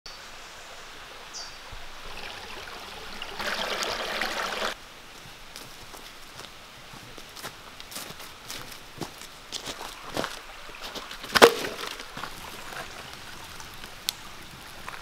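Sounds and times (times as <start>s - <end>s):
bird chirp: 0.1s - 1.6s
stream trickling over rocks: 0.2s - 4.8s, 8.8s - 15.0s.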